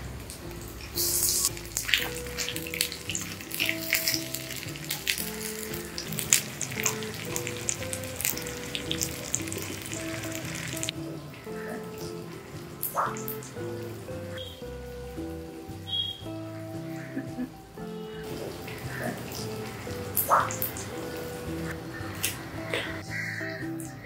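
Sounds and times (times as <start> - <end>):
oil popping and crackling: 0.0 - 23.6
soft background music: 0.0 - 24.0
vegetables sizzling in oil: 0.5 - 10.9.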